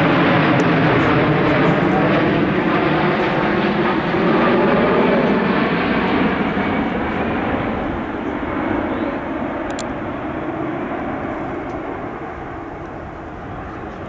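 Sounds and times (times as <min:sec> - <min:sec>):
jet engines rushing: 0:00.0 - 0:14.0.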